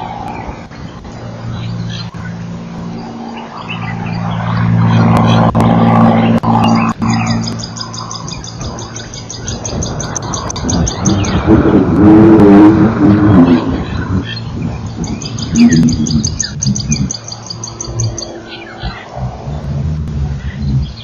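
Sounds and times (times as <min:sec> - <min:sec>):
low wavering sound: 0:00.0 - 0:21.0
small bird chirping: 0:06.2 - 0:11.6, 0:13.7 - 0:21.0.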